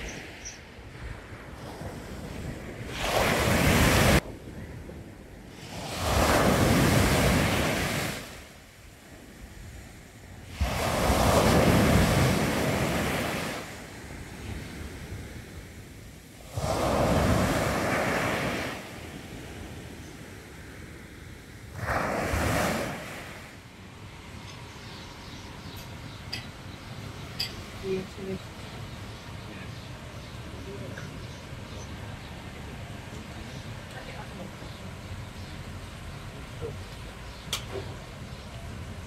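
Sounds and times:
waves crashing on sandy beach: 0.0s - 24.2s.

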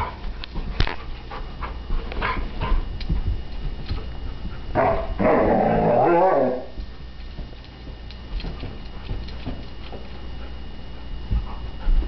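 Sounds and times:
puppy rooing: 4.8s - 6.8s.

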